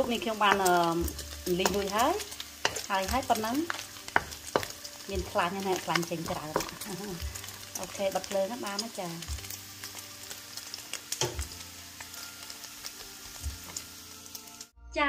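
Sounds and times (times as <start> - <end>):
fat sizzling in hot oil: 0.0 - 14.8
wooden spoon stirring: 0.5 - 7.4.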